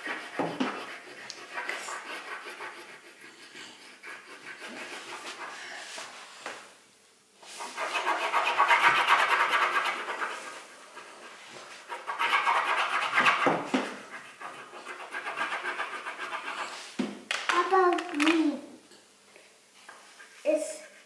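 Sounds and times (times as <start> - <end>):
crayon scribbling on paper: 0.0 - 5.6, 7.6 - 16.8.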